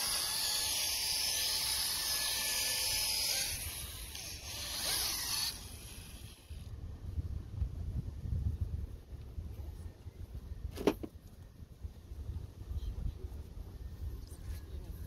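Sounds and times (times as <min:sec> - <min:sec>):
electric orbital sander hissing: 0:00.0 - 0:06.7.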